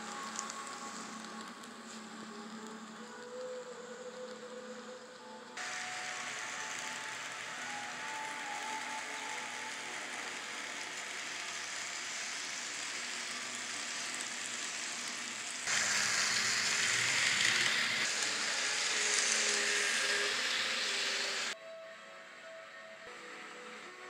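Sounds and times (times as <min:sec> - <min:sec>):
model trains rattling on track: 0:05.6 - 0:21.6.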